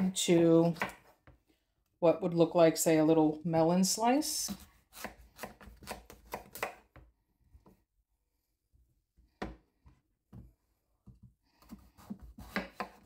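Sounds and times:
knife cutting on cutting board: 4.4 - 6.8, 11.6 - 13.0.

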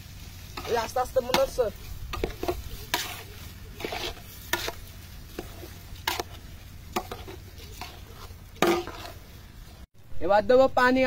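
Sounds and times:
metal spoon scraping metal pot: 0.6 - 9.3.

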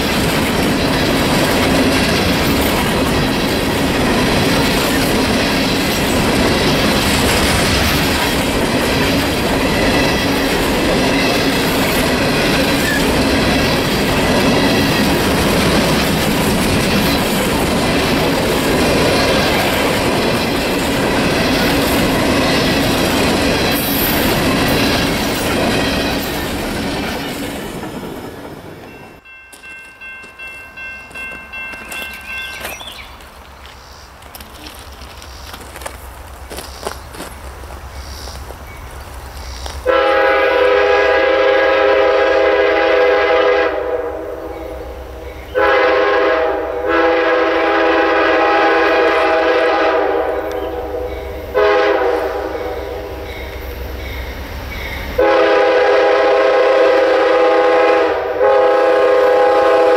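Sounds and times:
train wheels clattering over rails: 0.0 - 30.4.

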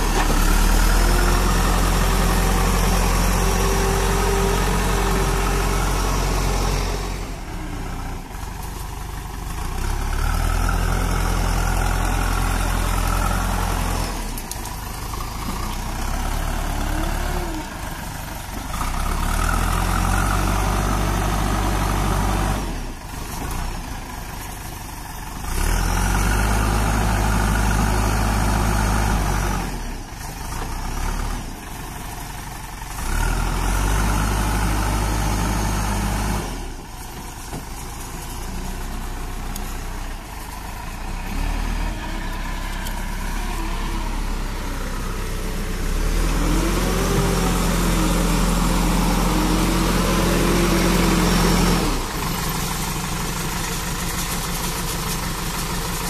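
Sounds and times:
diesel engine idling and revving: 0.0 - 56.0.

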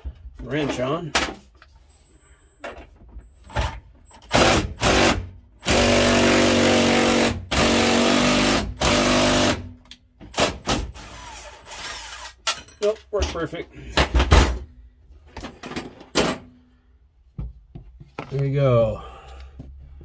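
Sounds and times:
cordless impact driver running: 4.3 - 9.7.

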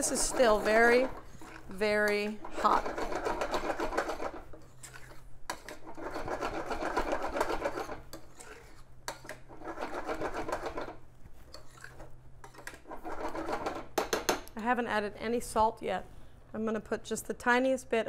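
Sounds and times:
spoon stirring thick risotto: 0.0 - 14.3
low steady hum: 0.0 - 18.0.

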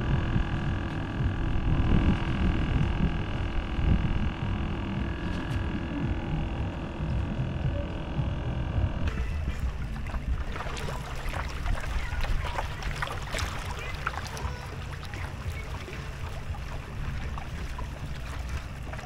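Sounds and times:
steady low rumble: 0.0 - 19.0
fish splashing at surface: 9.1 - 19.0.

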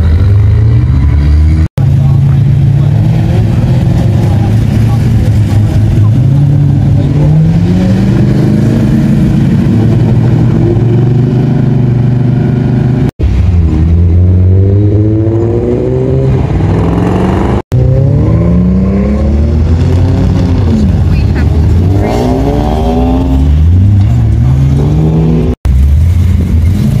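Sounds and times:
car engines revving: 0.0 - 27.0.

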